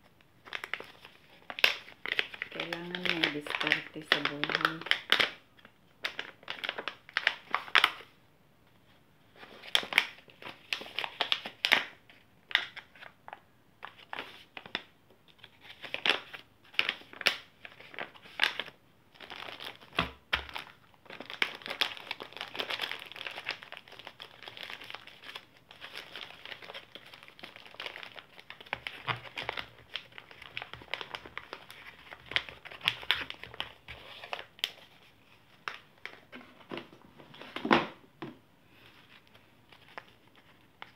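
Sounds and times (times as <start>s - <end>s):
plastic bags crinkling: 0.4s - 8.1s, 13.8s - 36.4s.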